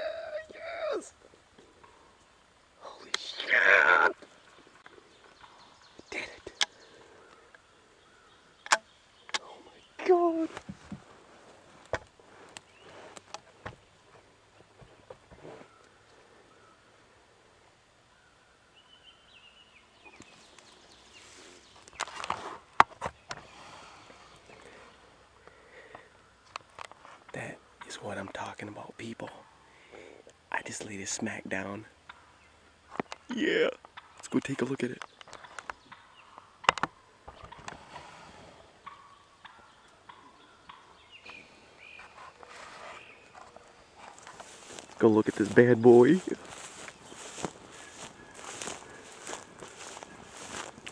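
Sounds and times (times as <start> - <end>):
faint bird calls: 0.0 - 11.1, 12.2 - 30.4, 31.5 - 50.9
sharp clicks: 8.6 - 9.5
rustling through tall grass: 20.2 - 22.8, 41.9 - 50.9.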